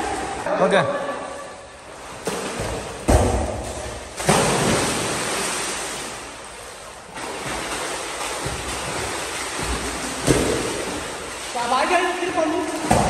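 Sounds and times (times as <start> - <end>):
swimming strokes splashing: 0.0 - 13.0
water churning: 0.0 - 13.0
big splash into pool: 2.0 - 6.4, 7.2 - 11.5.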